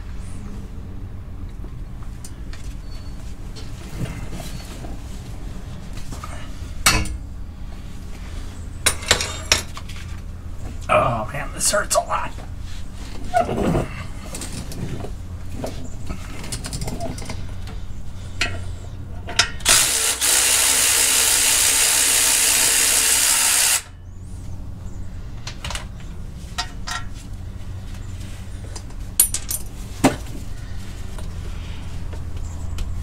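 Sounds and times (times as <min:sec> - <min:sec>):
metal tools clinking: 0:08.9 - 0:09.7, 0:29.2 - 0:29.8
power ratchet running: 0:19.6 - 0:24.0.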